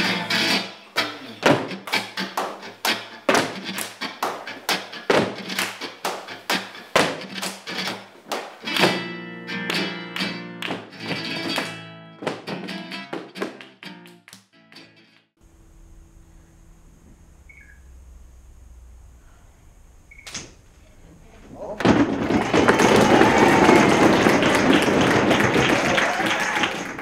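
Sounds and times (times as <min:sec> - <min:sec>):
guitar: 0:00.0 - 0:16.2, 0:21.6 - 0:27.0.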